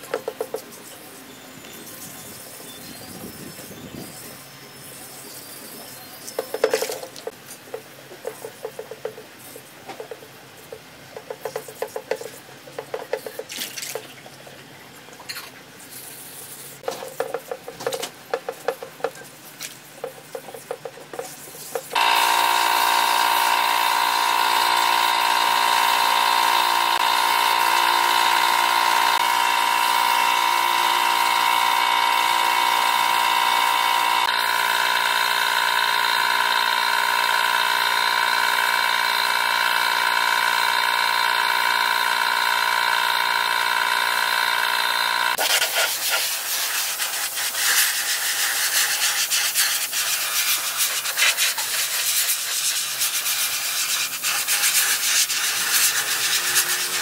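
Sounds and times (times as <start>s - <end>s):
steady machine hum: 21.9s - 45.6s
sandpaper rubbing on metal panel: 45.4s - 57.0s.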